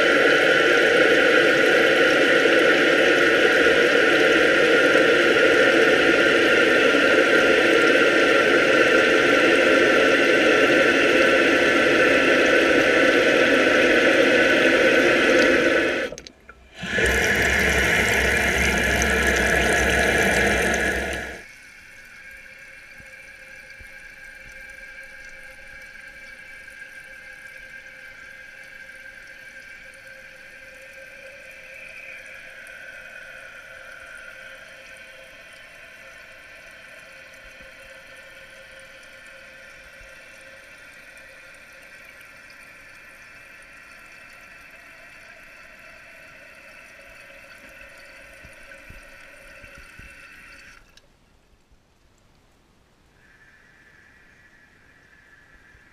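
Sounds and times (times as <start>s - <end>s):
toilet tank refilling: 11.5s - 21.5s, 41.8s - 51.0s.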